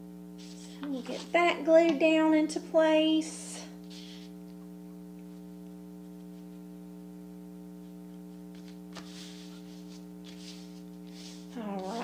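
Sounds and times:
electrical mains hum: 0.0 - 12.0
paper rustling: 8.5 - 12.0.

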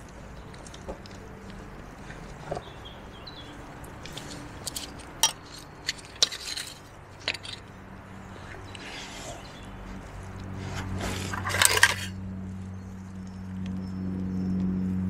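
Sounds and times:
metal camping stove clinks and knocks: 0.4 - 7.8, 11.3 - 12.2.

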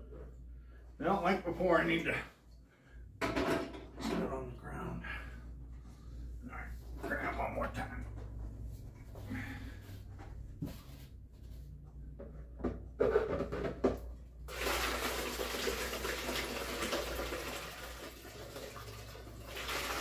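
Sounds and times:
berry mash pouring into glass jug: 14.5 - 20.0.

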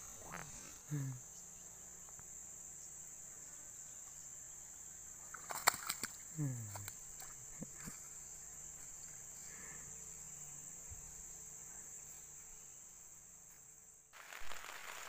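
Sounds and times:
even hiss: 0.0 - 3.2, 14.1 - 15.0
insects droning: 0.0 - 15.0.

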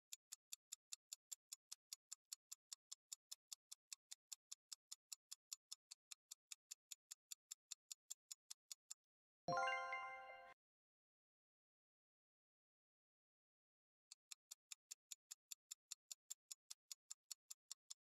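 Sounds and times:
countdown timer ticking: 9.5 - 10.6.

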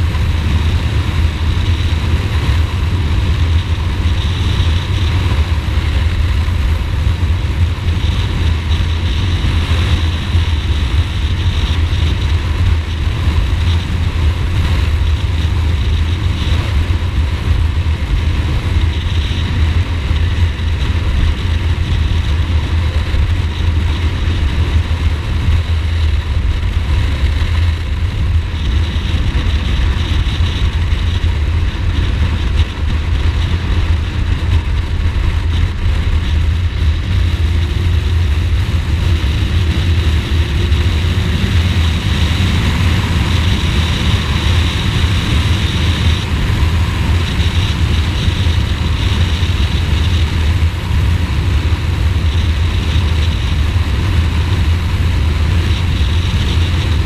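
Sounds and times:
motorcycle engine running: 0.0 - 57.0
road and wind noise: 0.0 - 57.0.

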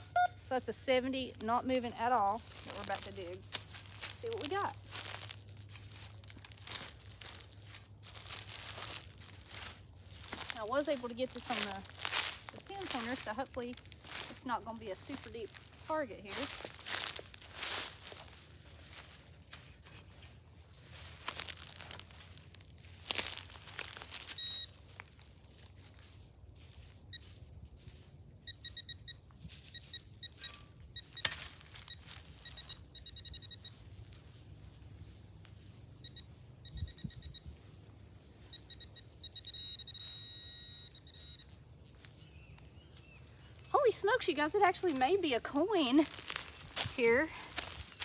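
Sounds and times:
metal detector beep: 0.0 - 5.3, 6.6 - 16.6, 24.2 - 24.9, 28.4 - 34.1, 35.9 - 37.8, 38.4 - 42.0
leaves and soil crunching: 0.0 - 36.6, 41.4 - 48.0
pinpointer high beeps: 24.3 - 24.8, 28.4 - 33.9, 36.0 - 37.5, 38.5 - 41.6.

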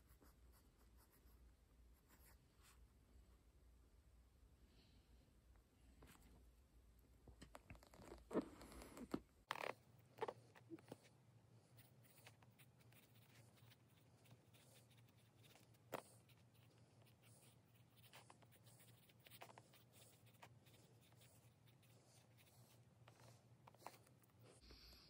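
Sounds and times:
pencil scratching on paper: 11.7 - 24.6.

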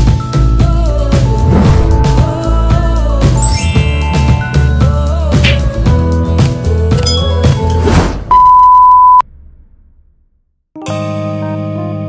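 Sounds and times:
upbeat intro music: 0.9 - 6.2
test-tone beep: 8.3 - 9.2.

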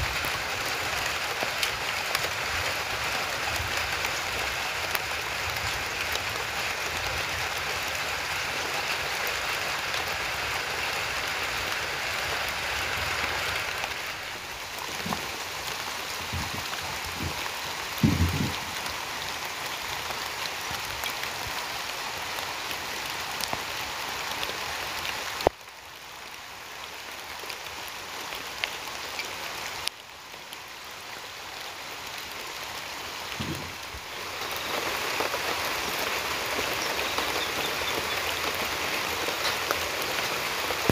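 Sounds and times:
rain pattering: 0.0 - 40.9
dull knock: 18.0 - 18.6.

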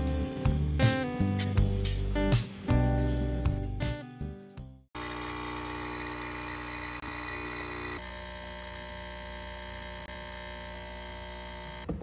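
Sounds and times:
espresso machine pump humming: 5.0 - 12.0.

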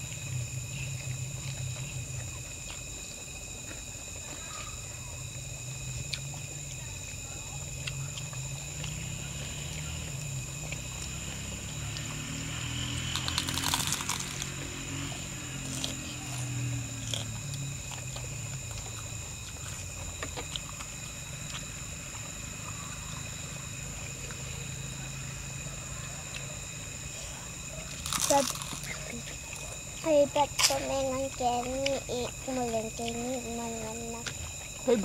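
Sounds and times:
low steady hum: 0.0 - 35.0
night insects calling: 0.0 - 35.0
rustling and crunching: 27.9 - 30.8.

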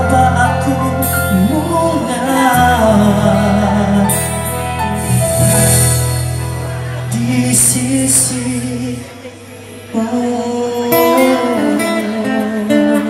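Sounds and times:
held bass guitar notes: 0.0 - 9.2
acoustic guitars playing: 0.0 - 13.0.

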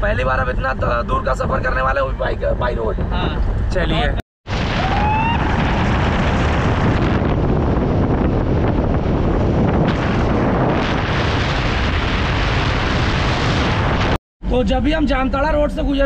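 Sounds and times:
wind buffeting microphone: 0.0 - 14.2.

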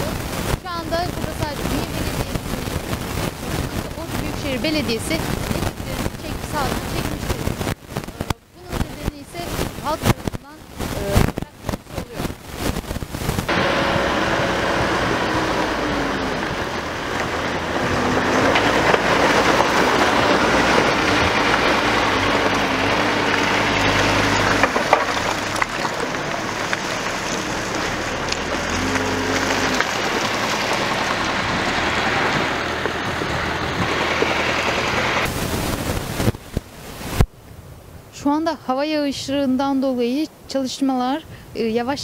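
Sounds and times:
diesel engine running: 0.0 - 35.8
bucket digging soil and rock: 17.0 - 36.4.

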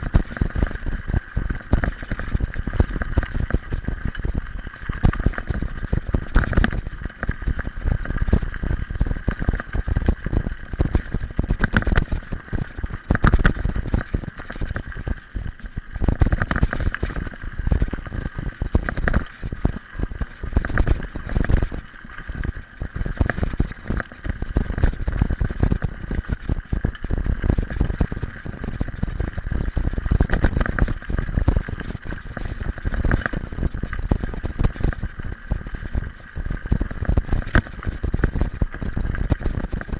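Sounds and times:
bike rattling and knocking: 0.0 - 39.9.

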